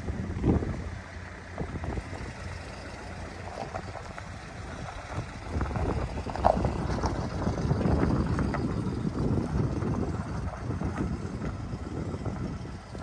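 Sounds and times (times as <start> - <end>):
pickup truck engine running: 0.0 - 13.0.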